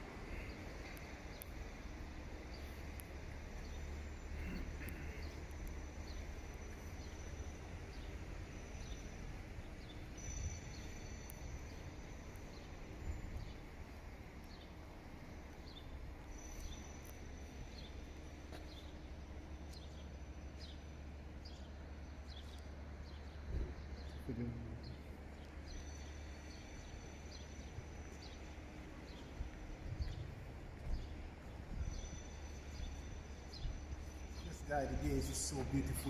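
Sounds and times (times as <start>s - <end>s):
steady low rumble: 0.0s - 36.0s
small birds chirping: 0.3s - 1.8s, 15.6s - 36.0s.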